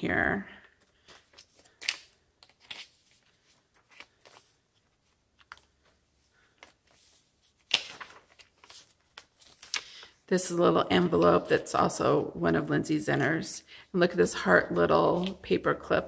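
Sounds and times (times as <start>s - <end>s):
paper pages rustling: 0.6s - 12.0s, 14.2s - 16.0s
sharp page flap: 7.6s - 10.0s.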